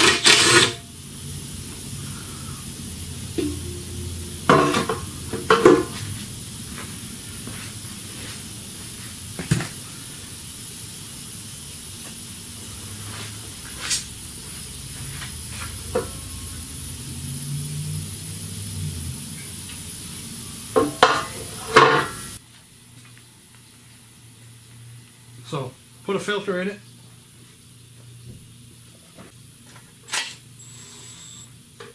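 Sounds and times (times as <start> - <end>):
steady hiss: 0.9 - 22.4.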